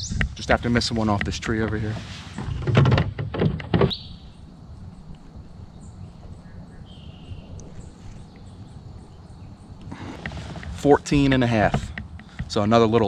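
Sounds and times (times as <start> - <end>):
bird call: 3.8 - 4.5, 5.7 - 10.3.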